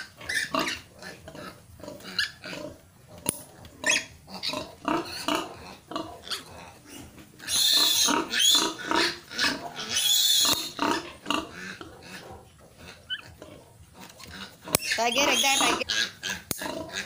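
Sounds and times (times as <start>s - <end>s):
piglet grunting: 0.0s - 17.0s
piglet squealing loudly: 7.4s - 11.0s, 13.1s - 13.4s, 14.8s - 16.4s.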